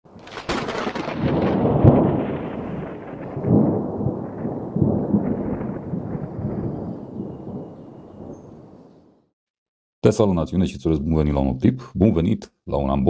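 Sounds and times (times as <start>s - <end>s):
thunder crack: 0.1s - 9.2s
rolling thunder rumbles: 0.1s - 9.3s.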